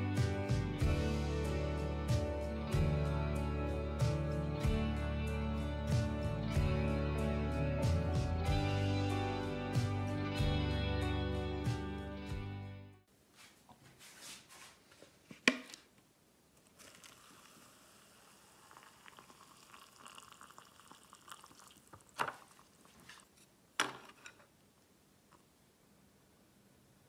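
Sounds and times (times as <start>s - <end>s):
background music: 0.0s - 13.0s
soft hiss: 13.1s - 27.0s.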